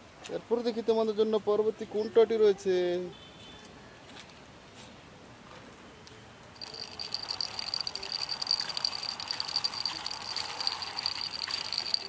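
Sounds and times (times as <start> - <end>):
toy gears whirring: 6.6 - 12.0.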